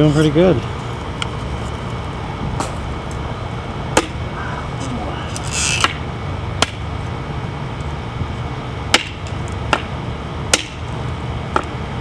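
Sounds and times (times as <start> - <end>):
steady low rumble: 0.0 - 12.0
knife chopping stems on wood: 4.0 - 4.2, 8.9 - 9.9, 10.5 - 10.8.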